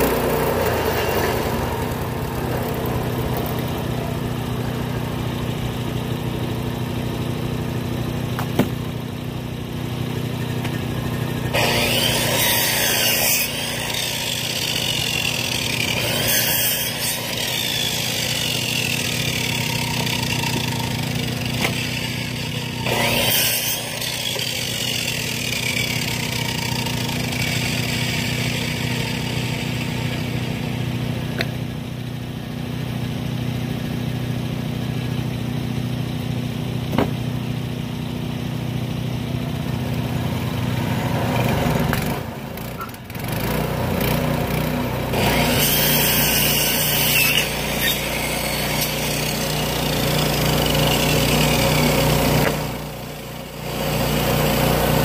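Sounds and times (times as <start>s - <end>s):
gas engine running: 0.0s - 11.7s, 17.2s - 23.2s.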